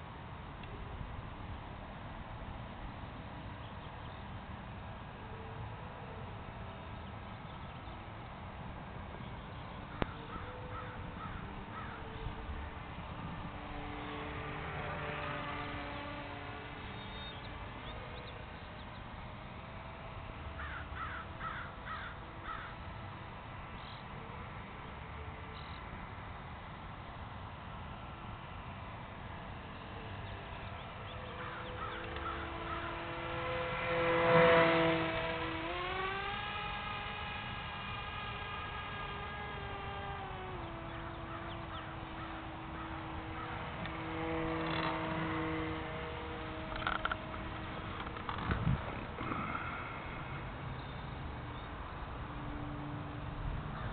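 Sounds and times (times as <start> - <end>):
faint background hum: 0.0 - 53.9
small electric plane motor whining: 2.2 - 53.9
crow cawing: 9.9 - 12.0, 20.6 - 22.8, 31.4 - 33.0, 49.2 - 50.2.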